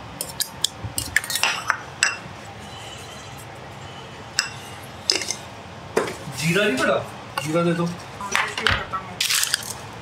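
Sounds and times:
metal spoon clinking on steel bowl: 4.4 - 5.4.

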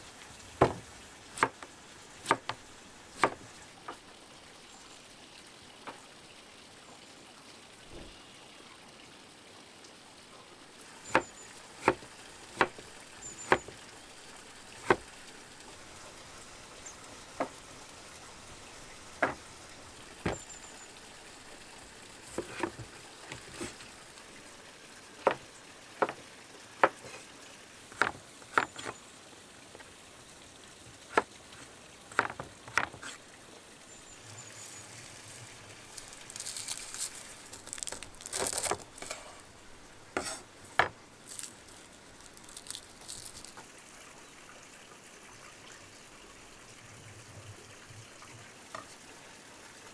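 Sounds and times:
knife cutting dry garlic: 11.1 - 13.8, 14.8 - 15.1, 35.9 - 39.5, 40.2 - 40.5, 41.2 - 43.6.

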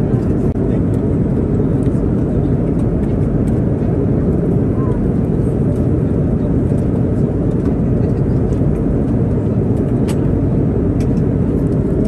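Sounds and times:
airliner cabin drone: 0.0 - 12.0.

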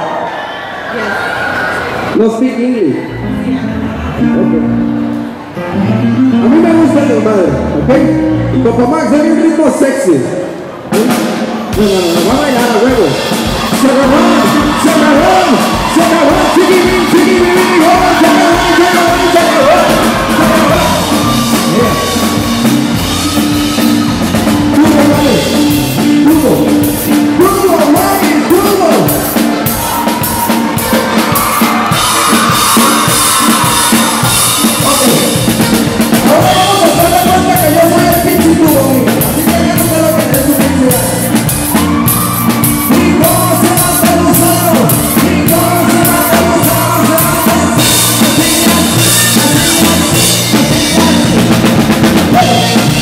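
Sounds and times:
bass: 0.0 - 53.0
drums: 6.1 - 53.0
guitars: 11.1 - 53.0.

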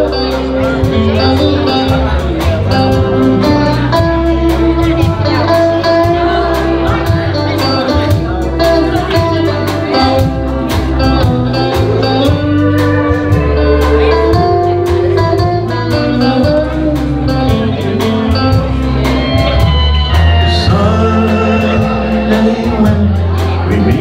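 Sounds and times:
country-rock band ballad: 0.0 - 24.0
electric guitar: 0.0 - 24.0
steady drum beat: 0.0 - 24.0.

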